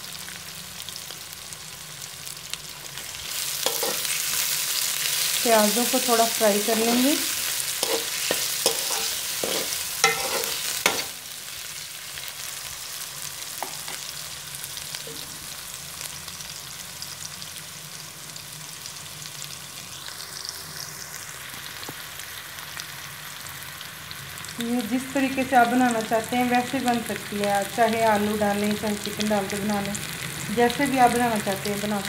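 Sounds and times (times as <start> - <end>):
onions sizzling in oil: 0.0 - 32.0
utensil scraping a pan: 3.4 - 4.4, 7.8 - 11.2.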